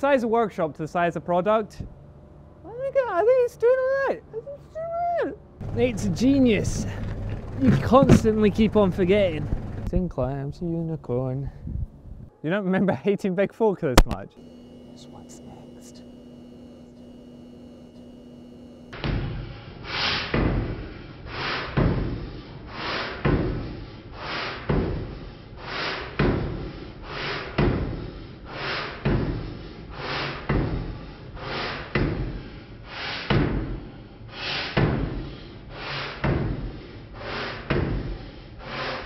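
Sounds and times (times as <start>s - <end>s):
power hammer striking: 5.6s - 9.9s, 16.8s - 19.5s.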